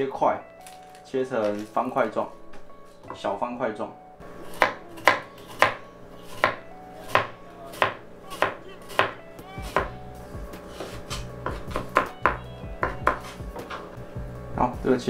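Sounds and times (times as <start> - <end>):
knife chopping on plastic board: 4.4 - 10.0, 10.7 - 13.8.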